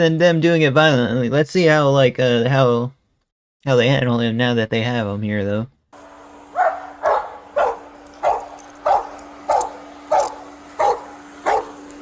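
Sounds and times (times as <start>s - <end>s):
faint steady hum: 6.0s - 12.0s
dog barking: 6.5s - 11.8s.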